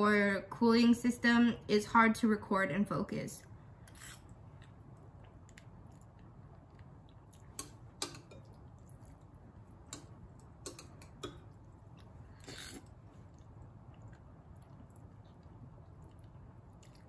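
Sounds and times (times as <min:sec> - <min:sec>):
quiet chewing: 0:04.0 - 0:17.0
metal chopsticks clicking on bowl: 0:09.9 - 0:11.4
slurping noodles: 0:12.3 - 0:13.0.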